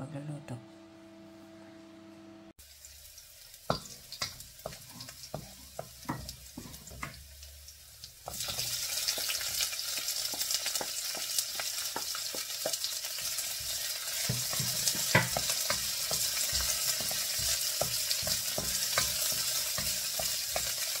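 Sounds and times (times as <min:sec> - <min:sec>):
garlic sizzling in oil: 0:02.6 - 0:21.0
wooden spatula tapping a wok: 0:03.7 - 0:07.2, 0:08.2 - 0:21.0.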